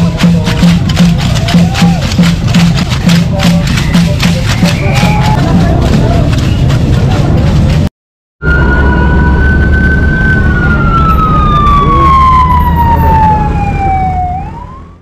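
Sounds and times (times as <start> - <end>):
traffic rumble: 0.0 - 15.0
emergency siren wailing: 8.4 - 15.0.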